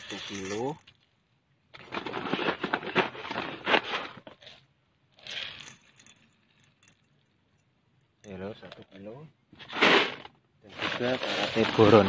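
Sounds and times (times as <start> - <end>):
granules rattling in a steel bowl: 0.0 - 1.0, 5.2 - 7.3.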